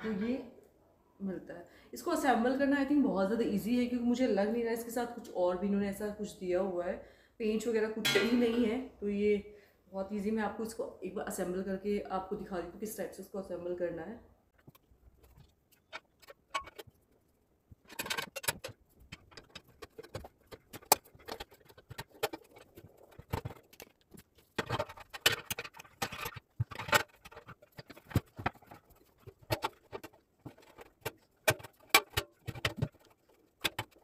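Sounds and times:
metal clicks and clatter: 0:14.6 - 0:17.2, 0:17.8 - 0:34.0.

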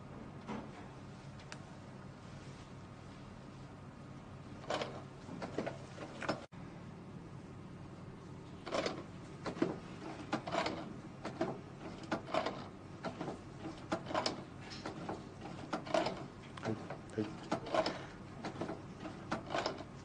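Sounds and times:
mechanical clacks: 0:08.7 - 0:19.9.

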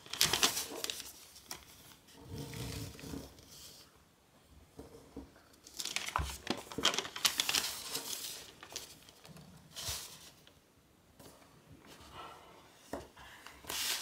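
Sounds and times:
paper crinkling and rustling: 0:00.0 - 0:03.8, 0:05.6 - 0:10.6, 0:12.9 - 0:14.0.

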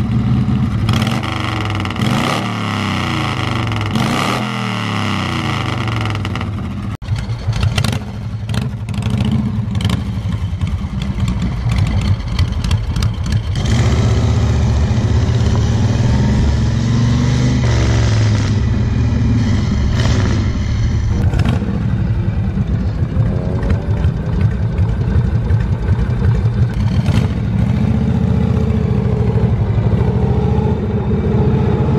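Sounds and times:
motorcycle engine running: 0:00.0 - 0:31.9.

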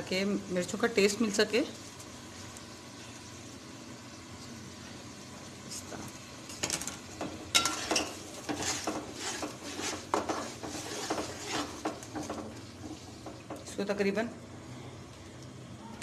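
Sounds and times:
spices sizzling in oil: 0:00.0 - 0:15.4
spatula scraping a metal pot: 0:07.6 - 0:13.0.

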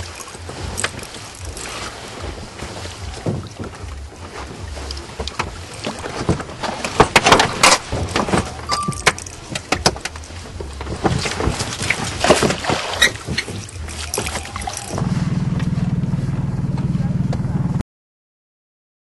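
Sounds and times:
wet line hauled in: 0:00.0 - 0:15.9
water splashing around boat: 0:00.0 - 0:16.3
low steady hum: 0:00.0 - 0:17.8
sharp knocks and clatters: 0:05.2 - 0:15.0.

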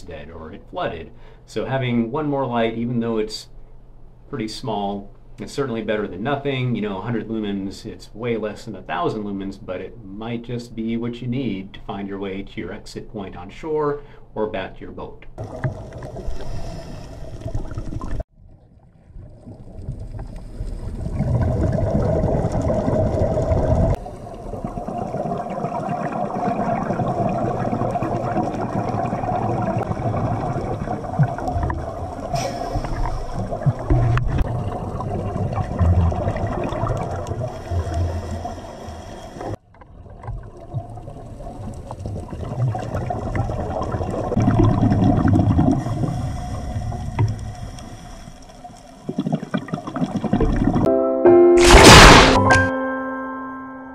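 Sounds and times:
steady underwater hum: 0:00.0 - 0:50.9
regulator bubbles underwater: 0:15.4 - 0:50.9.

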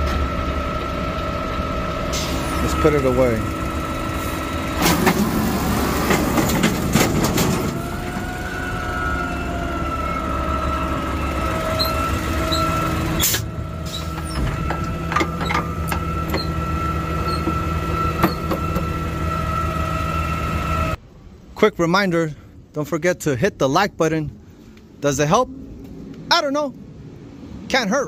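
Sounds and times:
hydraulic whine: 0:00.0 - 0:21.0
garbage truck engine rumble: 0:00.0 - 0:21.5.

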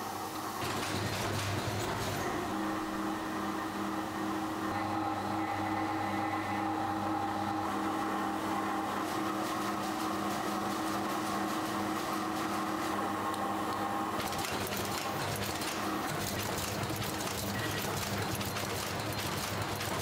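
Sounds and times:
factory machinery humming: 0:00.0 - 0:20.0.

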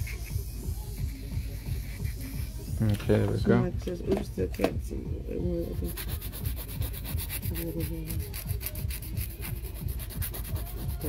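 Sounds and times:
nail file rubbing fingernail: 0:00.0 - 0:02.8, 0:05.6 - 0:11.0.

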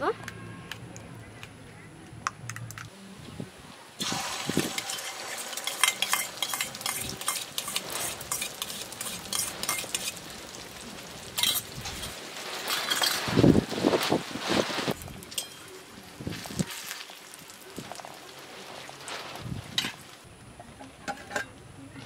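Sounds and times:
egg sizzling in hot oil: 0:04.0 - 0:20.2
spoon scraping steel bowl: 0:04.6 - 0:10.2.

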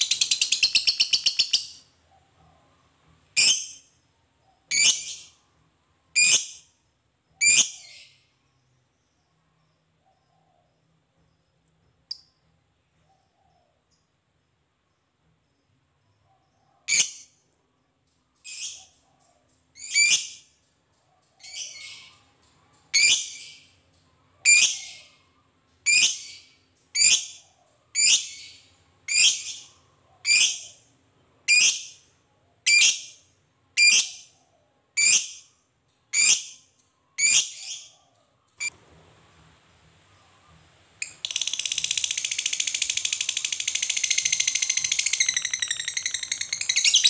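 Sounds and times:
bird chattering calls: 0:41.0 - 0:47.0.

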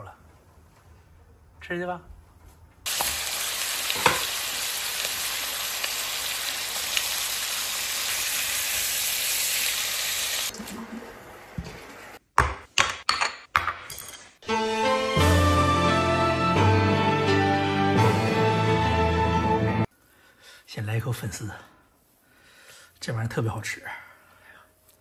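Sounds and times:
fish sizzling in a frying pan: 0:02.9 - 0:10.5.

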